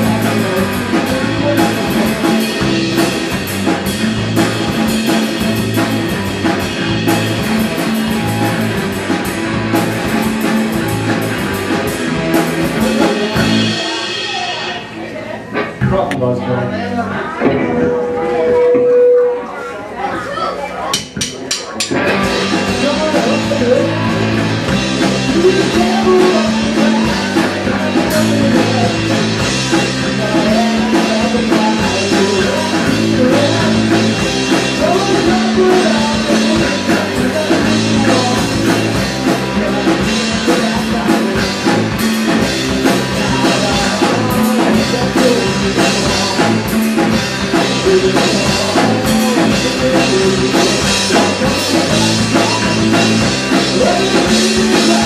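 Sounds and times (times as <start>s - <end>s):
man singing: 0.0s - 8.8s, 12.4s - 14.0s, 22.1s - 55.0s
electric bass: 0.0s - 19.5s, 20.9s - 55.0s
drum kit: 0.0s - 19.8s, 20.8s - 55.0s
electric guitar: 0.0s - 19.8s, 21.8s - 55.0s.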